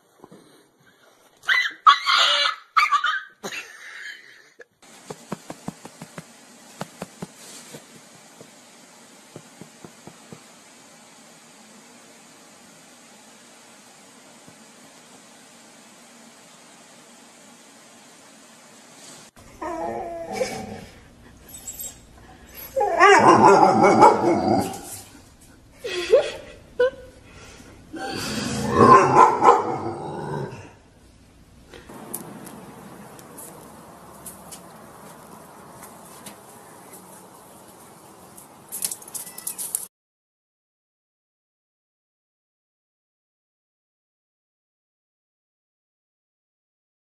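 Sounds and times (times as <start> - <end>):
dog whining and yipping: 1.4 - 3.4, 19.6 - 20.8, 21.4 - 25.0
steady hiss: 4.8 - 19.6
cat and dog snarling and hissing: 19.2 - 25.3, 28.0 - 30.8.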